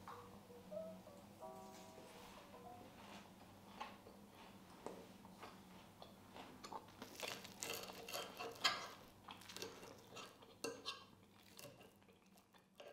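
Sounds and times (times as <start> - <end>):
faint steady hum: 0.0 - 12.3
cutlery clinking against dishes: 7.6 - 9.0, 9.6 - 11.1.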